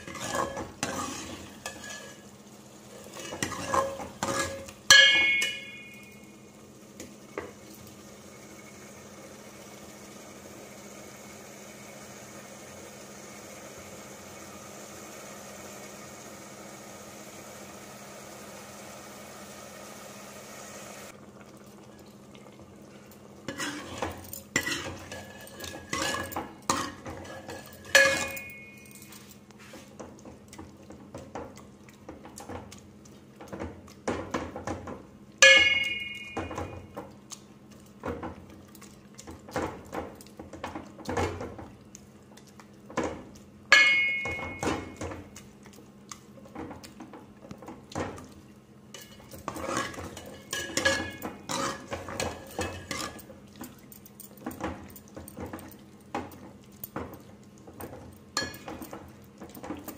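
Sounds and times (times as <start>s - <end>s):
ladle stirring thick curry: 0.0s - 2.3s, 2.9s - 4.8s, 21.4s - 28.7s, 44.3s - 59.9s
ladle clanking on metal pot: 3.2s - 6.2s, 23.5s - 29.1s, 33.5s - 37.0s, 43.0s - 45.3s, 49.0s - 53.3s, 57.8s - 59.9s.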